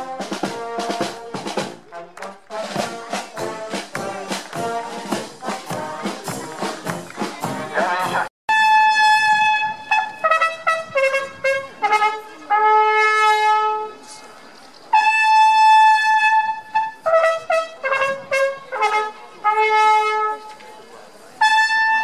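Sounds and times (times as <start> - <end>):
solo trumpet signal call: 8.5 - 14.0, 14.9 - 20.5, 21.4 - 22.0.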